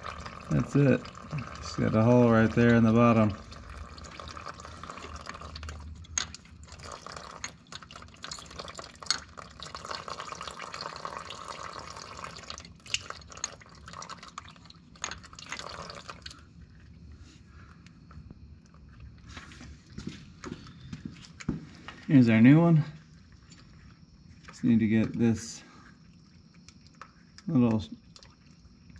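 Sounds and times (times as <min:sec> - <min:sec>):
oil trickling into a pan: 0:00.0 - 0:16.8.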